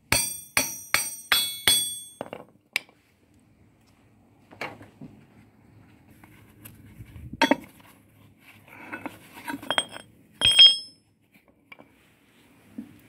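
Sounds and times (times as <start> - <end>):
steel rail knocking and clinking: 9.7 - 11.0.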